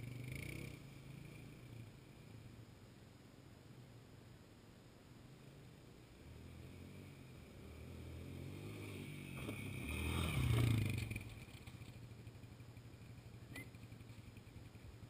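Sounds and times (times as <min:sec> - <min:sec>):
atv engine passing: 0:00.0 - 0:02.6, 0:05.4 - 0:15.0.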